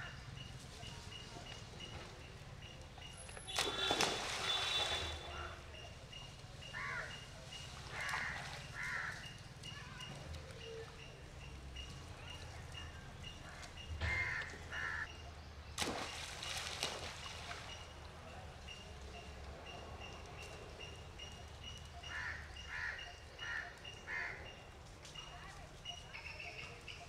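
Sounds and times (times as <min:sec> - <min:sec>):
splash into river water: 0:03.4 - 0:05.4, 0:15.8 - 0:17.9.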